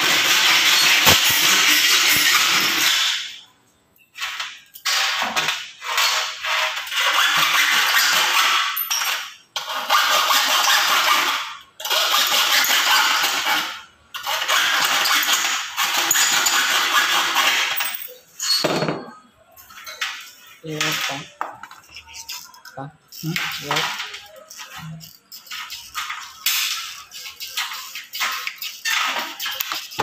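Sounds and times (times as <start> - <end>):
hacksaw cutting metal: 0.0 - 3.4, 4.8 - 17.8
knocks and handling sounds: 17.8 - 30.0.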